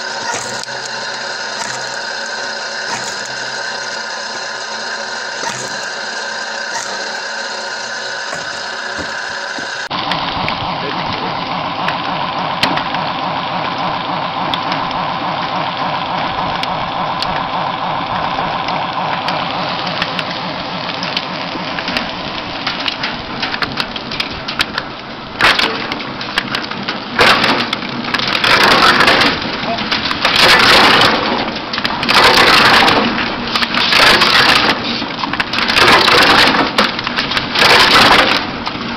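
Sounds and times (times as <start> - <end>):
loud wood crunches: 0.0 - 9.9, 30.1 - 34.8, 35.5 - 38.5
wood cracking and snapping: 0.0 - 9.9
firewood machine running: 0.0 - 38.9.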